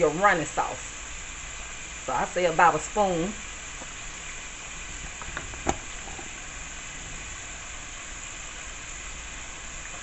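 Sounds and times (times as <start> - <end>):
sauce sizzling: 0.0 - 10.0.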